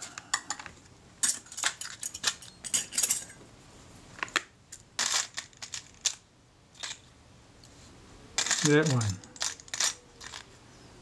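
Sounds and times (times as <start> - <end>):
metal parts clinking in plastic tub: 0.3 - 3.4, 8.4 - 10.5.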